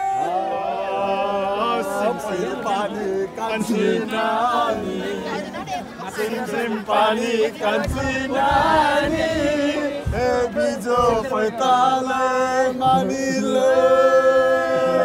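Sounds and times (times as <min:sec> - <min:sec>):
group singing a chant: 0:00.0 - 0:15.0
dull low thumps: 0:07.8 - 0:11.8.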